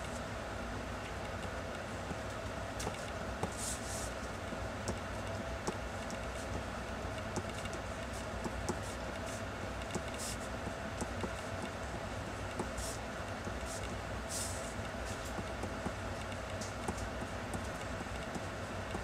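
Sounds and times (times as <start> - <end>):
low room hum: 0.0 - 19.0
pencil tapping on paper: 8.4 - 8.9, 15.2 - 16.0, 16.8 - 19.0.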